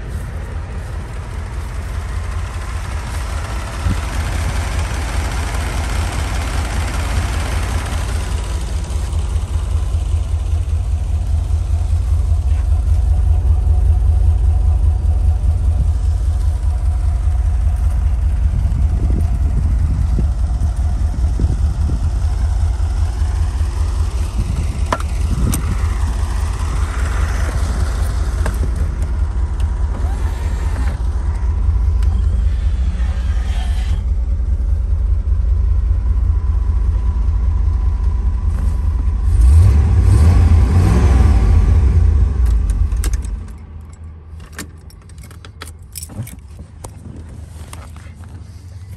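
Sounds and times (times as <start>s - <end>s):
car engine idling: 0.0s - 48.9s
ignition key clicks: 42.5s - 47.0s
key rattle: 43.0s - 48.0s.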